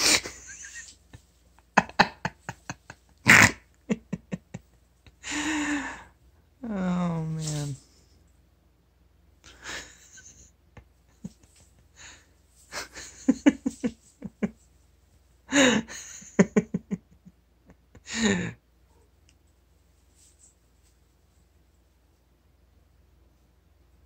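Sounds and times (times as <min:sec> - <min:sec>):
person laughing under breath: 0:00.0 - 0:06.1, 0:09.5 - 0:14.6, 0:15.5 - 0:18.6
person gasping: 0:05.2 - 0:06.2, 0:18.0 - 0:18.6.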